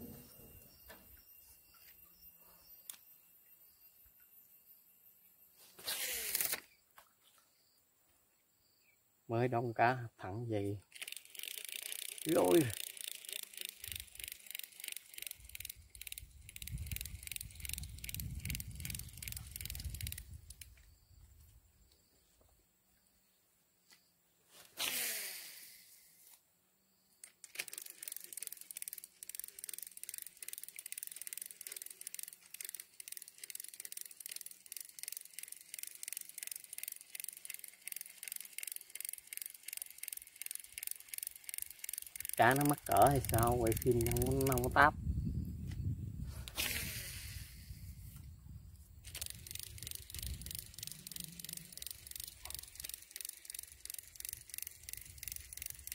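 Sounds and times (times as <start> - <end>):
fishing reel clicking: 5.8 - 6.8, 10.0 - 20.9, 24.8 - 26.0, 27.2 - 44.9, 49.0 - 55.9.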